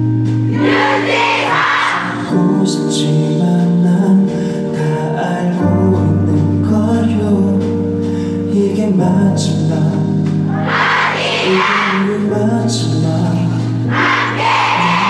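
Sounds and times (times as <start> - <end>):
man singing a slow ballad: 2.2 - 10.5, 11.5 - 13.9.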